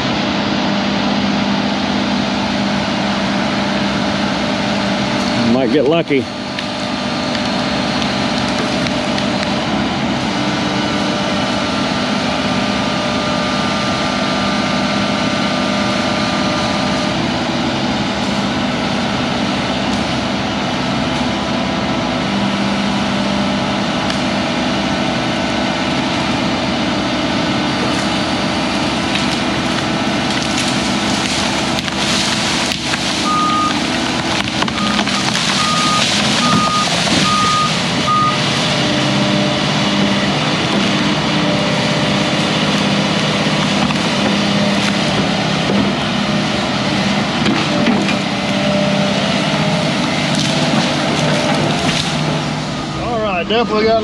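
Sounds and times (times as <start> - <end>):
excavator diesel engine running: 0.0 - 54.0
wood cracking and branches snapping: 6.4 - 9.7, 27.8 - 38.6, 40.2 - 48.6, 49.4 - 52.5
high-pitched alarm beeps: 35.6 - 38.4.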